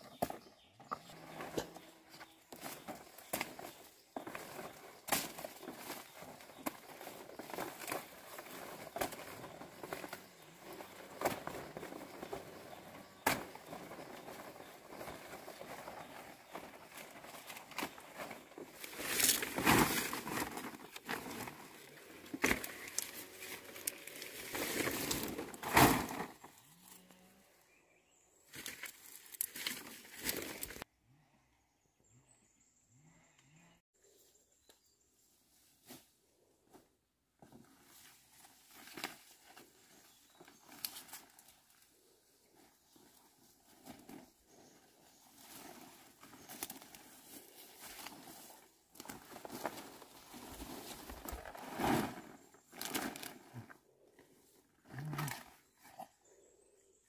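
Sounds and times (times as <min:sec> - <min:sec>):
leaves rustling and crackling: 0:01.2 - 0:27.0, 0:28.5 - 0:30.8, 0:37.8 - 0:41.9, 0:45.2 - 0:53.7.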